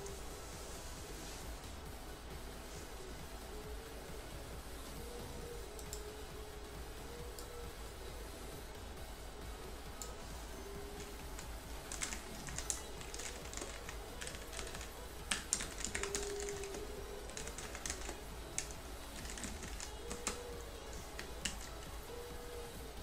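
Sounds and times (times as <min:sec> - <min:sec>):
faint background music: 0:00.0 - 0:23.0
computer keyboard typing: 0:05.4 - 0:06.2, 0:10.0 - 0:22.3.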